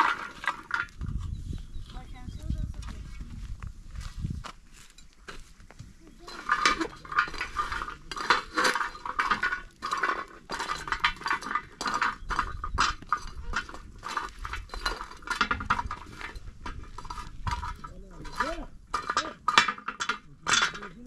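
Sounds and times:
metal dishes clinking: 0:06.1 - 0:21.0.

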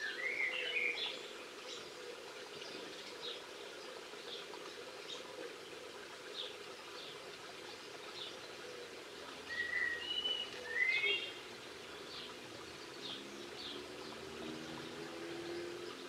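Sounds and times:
songbirds calling: 0:00.0 - 0:16.0.

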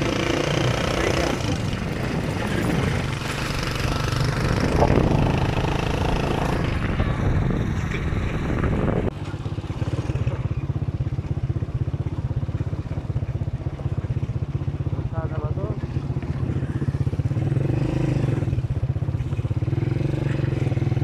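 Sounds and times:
motorcycle engine running: 0:00.0 - 0:21.0
wind rush over microphone: 0:01.1 - 0:09.2.

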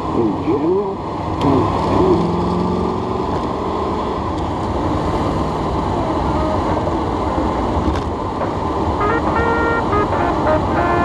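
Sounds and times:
road noise: 0:00.0 - 0:11.0
car engine running: 0:04.2 - 0:11.0.

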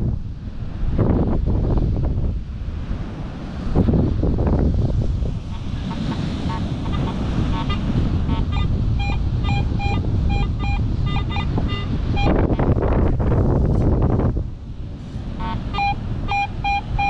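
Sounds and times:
wind noise on microphone: 0:00.0 - 0:17.0
metal detector beeping: 0:08.5 - 0:12.5, 0:15.4 - 0:17.0.

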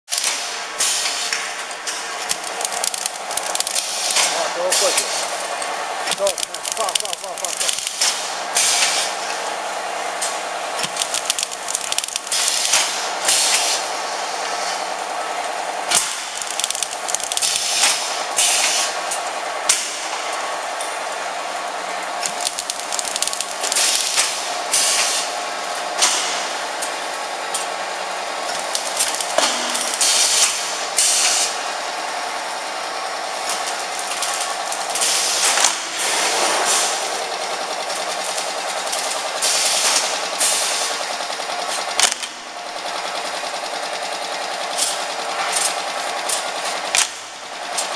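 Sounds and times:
machine hum: 0:00.1 - 0:47.9
hissing clattering bursts: 0:00.2 - 0:09.4, 0:10.8 - 0:13.9, 0:15.8 - 0:19.0.

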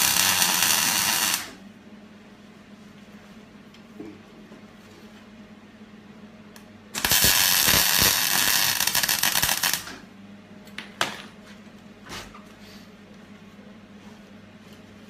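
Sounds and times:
arc welding crackling: 0:00.0 - 0:01.6, 0:07.0 - 0:10.0.

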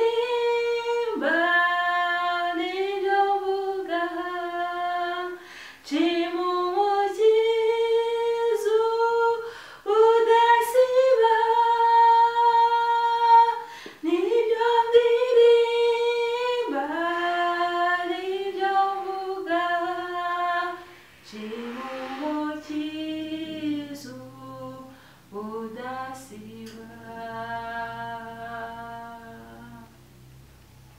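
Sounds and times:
woman singing a hymn: 0:00.0 - 0:30.0.

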